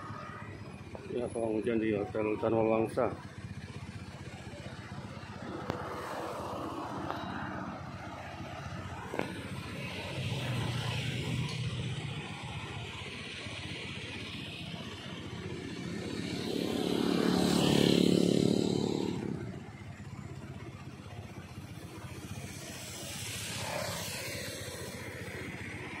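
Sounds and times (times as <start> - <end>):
background traffic: 0.0 - 26.0
vehicle driving past: 5.3 - 8.4, 15.5 - 19.6.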